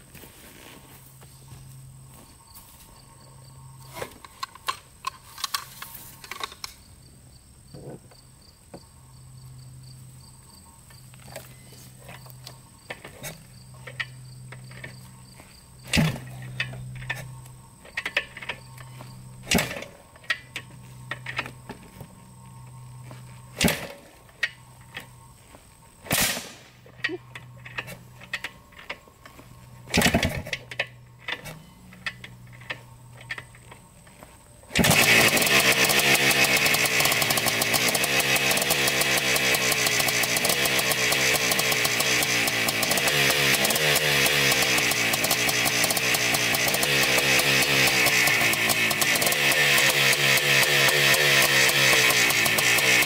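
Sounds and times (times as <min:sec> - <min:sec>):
motorcycle engine revving: 0:11.2 - 0:53.0
kick-start clunks: 0:15.8 - 0:22.1, 0:23.5 - 0:25.1, 0:26.0 - 0:33.9, 0:34.7 - 0:53.0.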